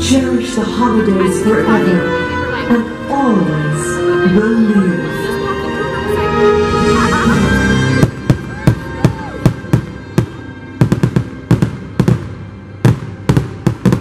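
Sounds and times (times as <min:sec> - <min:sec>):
show music: 0:00.0 - 0:14.0
fireworks bursting: 0:08.0 - 0:14.0.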